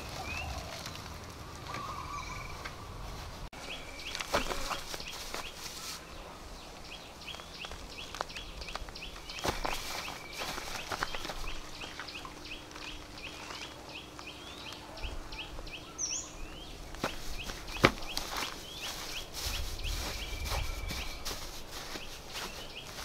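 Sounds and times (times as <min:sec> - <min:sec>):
dry grass rustling and crackling: 0:00.0 - 0:15.8, 0:16.5 - 0:23.0.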